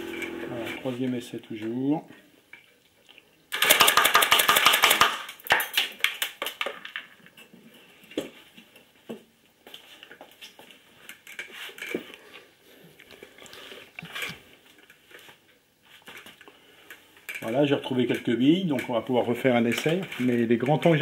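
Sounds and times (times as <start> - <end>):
airsoft machine gun firing: 3.6 - 5.2.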